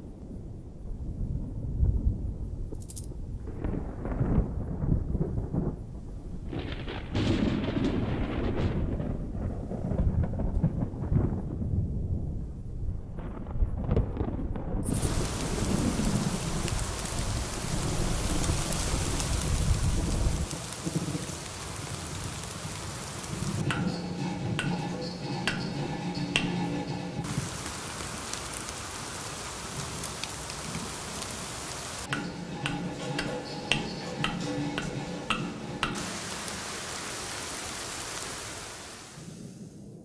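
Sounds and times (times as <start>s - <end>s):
rain hissing: 14.8s - 40.0s.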